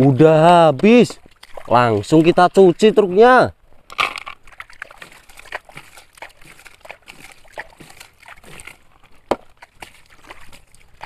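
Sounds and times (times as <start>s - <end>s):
water splashing on plastic toy: 0.4s - 3.1s, 3.8s - 11.0s.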